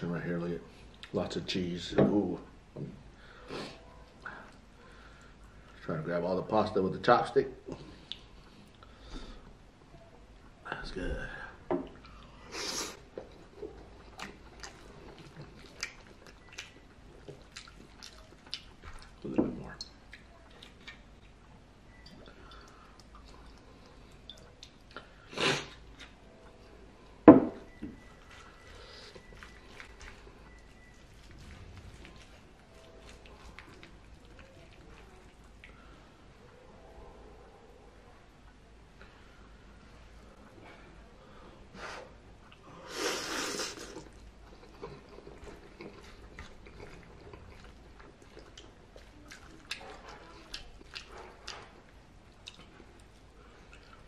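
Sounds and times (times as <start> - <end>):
chewing: 7.7 - 9.0, 11.8 - 26.7, 27.7 - 36.2, 43.3 - 54.0
man slurping noodles: 42.9 - 44.1.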